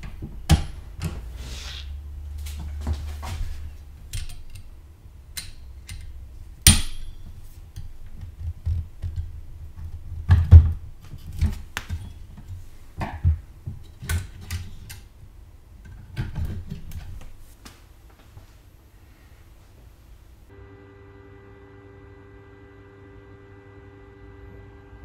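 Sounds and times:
metal clicks and knocks: 4.0s - 4.7s.

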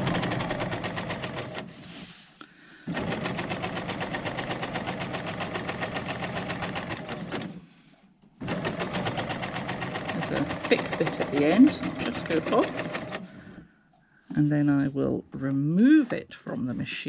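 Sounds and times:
sewing machine stitching: 0.0s - 2.0s, 2.9s - 7.6s, 8.4s - 13.6s.

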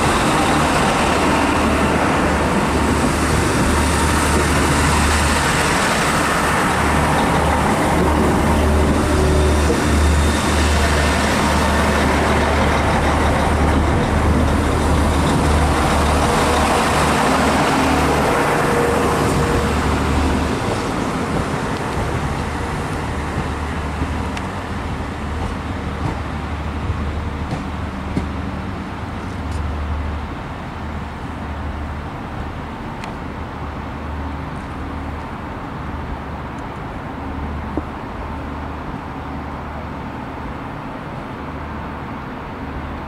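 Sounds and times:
train diesel engines rumbling: 0.0s - 43.0s.

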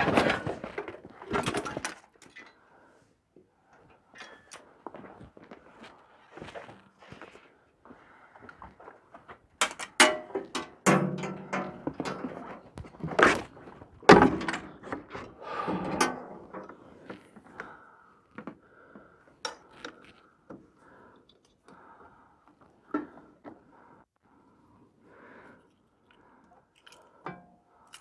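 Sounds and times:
handling knocks and clatter: 0.0s - 2.5s, 9.6s - 17.4s.

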